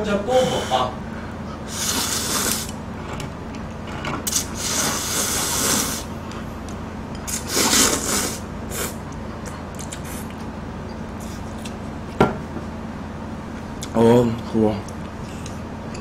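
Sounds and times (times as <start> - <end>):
low steady hum: 0.0 - 16.0
noodles slurped: 1.7 - 3.2, 3.8 - 6.1, 7.3 - 9.0.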